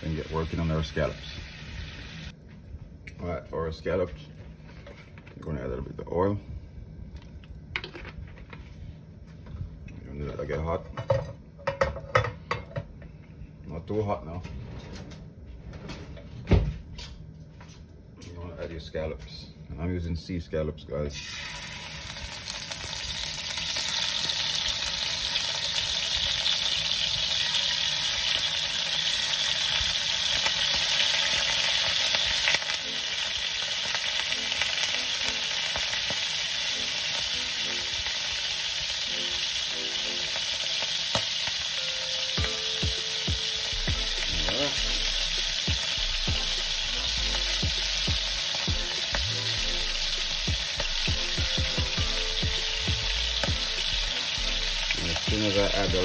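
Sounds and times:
scallops sizzling in hot oil: 0.0s - 2.4s, 21.2s - 56.0s.

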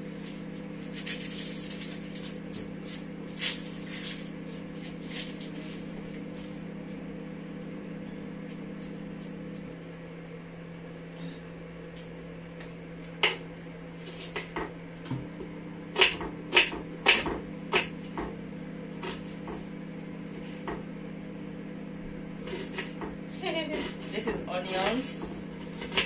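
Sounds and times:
steady low hum: 0.0s - 26.0s
knife chopping on wooden board: 15.9s - 18.4s, 24.8s - 26.0s.

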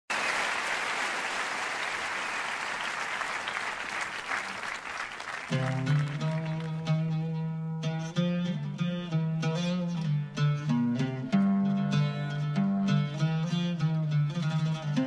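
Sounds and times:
audience applauding: 0.1s - 6.8s
oud playing: 5.5s - 15.0s.

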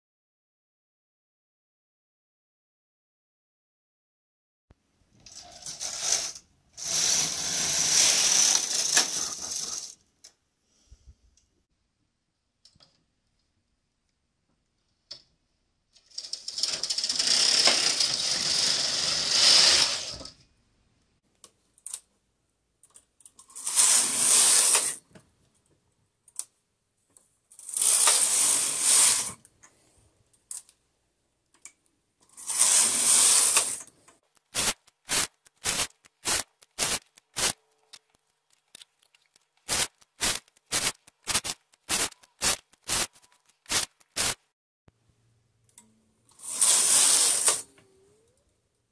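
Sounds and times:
knitting machine carriage rattle: 16.0s - 20.3s
short sharp clicks: 34.4s - 44.4s.

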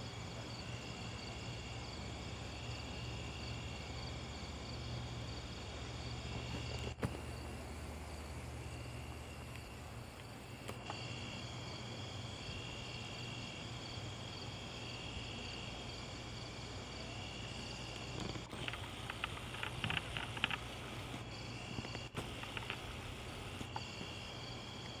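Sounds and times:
insects chirping in high trills: 0.0s - 25.0s
steady low hum: 0.0s - 25.0s
scratchy clicking: 18.2s - 21.2s, 21.9s - 23.9s.

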